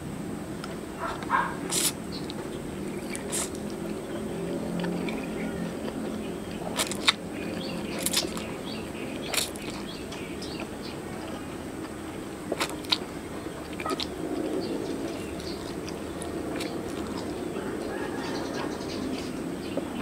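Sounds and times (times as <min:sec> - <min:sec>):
person slurping noodles: 0:01.6 - 0:02.0, 0:02.9 - 0:04.0.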